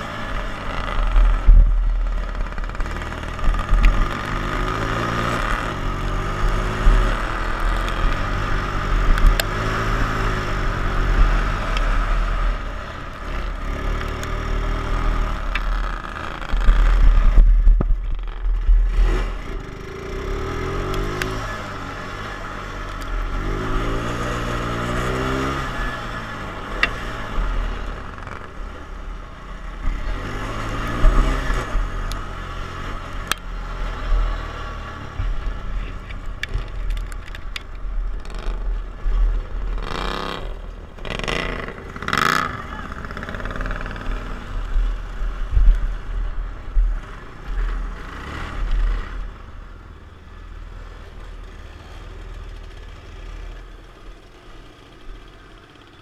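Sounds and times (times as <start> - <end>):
lawn mower engine revving: 0.0 - 28.6, 29.5 - 37.4, 39.4 - 45.6.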